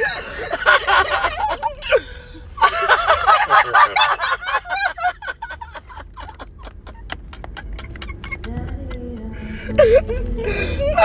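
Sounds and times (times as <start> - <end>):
high-pitched cackling laughter: 2.6 - 8.8.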